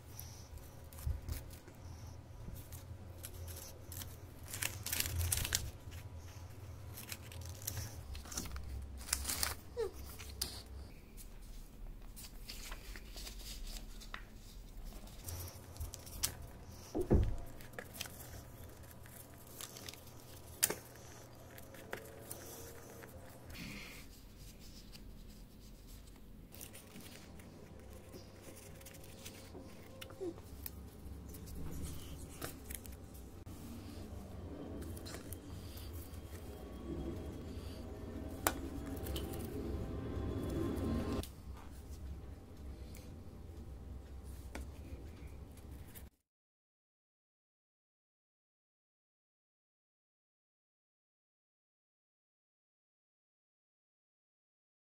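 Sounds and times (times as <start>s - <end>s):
scissors snipping paper: 0.0s - 10.7s, 12.2s - 24.0s, 24.6s - 33.2s
paper rustling and creasing: 0.0s - 43.1s
faint low hum: 0.0s - 46.1s.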